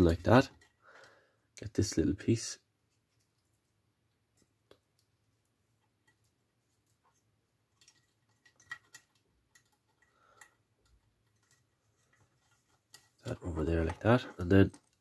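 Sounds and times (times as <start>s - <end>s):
plastic parts clicking: 7.7s - 15.0s.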